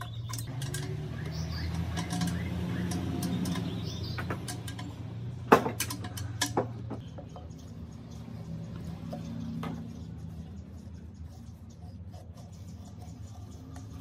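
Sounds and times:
tools and metal parts clicking: 0:00.0 - 0:10.0.

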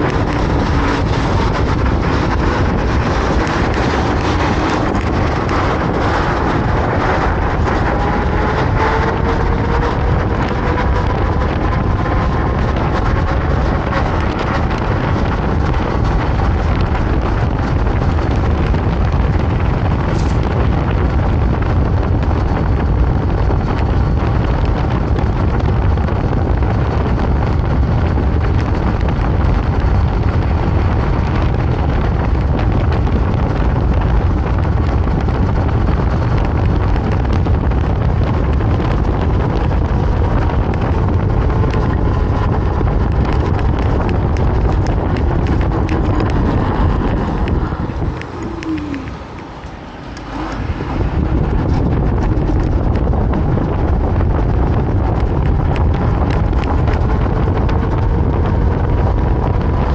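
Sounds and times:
wind rushing over microphone: 0:00.0 - 0:59.9.

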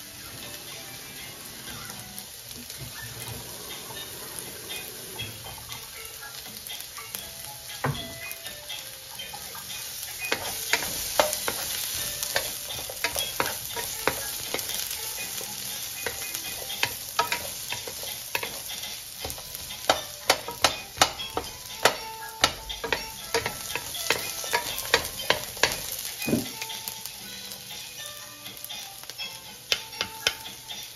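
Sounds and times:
onion sizzling in wok: 0:00.0 - 0:30.9
wooden spatulas scraping pan: 0:10.2 - 0:26.6.

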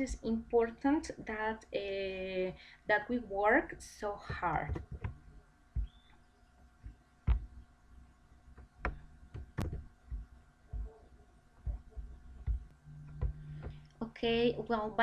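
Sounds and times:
faint steady hum: 0:00.0 - 0:15.0
soft knocks and clicks: 0:04.3 - 0:06.2, 0:06.8 - 0:07.6, 0:08.5 - 0:13.9.

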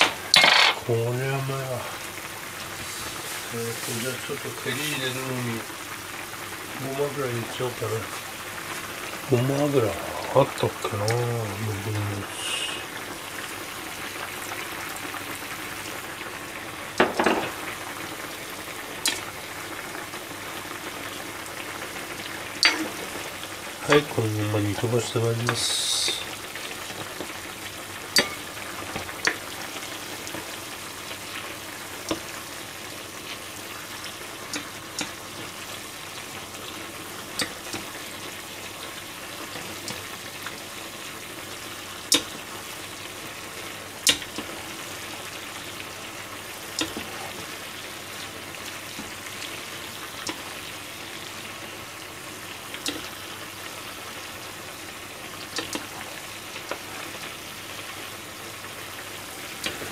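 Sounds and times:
food sizzling and bubbling in pan: 0:00.0 - 0:59.9
metal ladle clinking on pan: 0:28.2 - 0:28.4.

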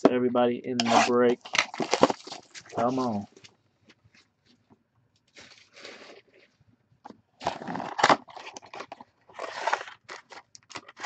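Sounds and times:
cardboard box scraping and crinkling: 0:00.8 - 0:03.2, 0:05.4 - 0:06.4, 0:07.4 - 0:11.0.

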